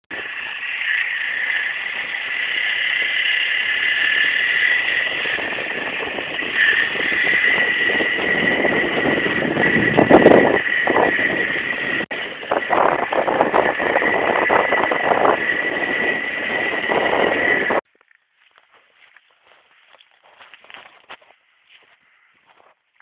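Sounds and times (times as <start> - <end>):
wind on microphone: 0.1 - 17.8
two-stroke motorcycle engine: 0.1 - 18.5.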